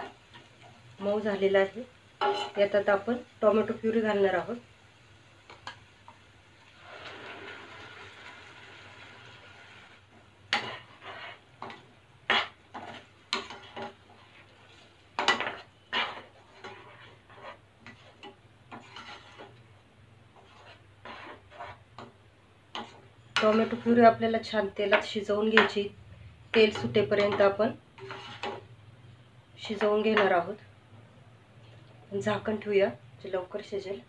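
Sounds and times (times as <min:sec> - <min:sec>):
puree hissing in hot oil: 0:00.0 - 0:11.8
plastic spatula scraping a pan: 0:10.5 - 0:19.6, 0:20.4 - 0:22.1, 0:28.0 - 0:28.7.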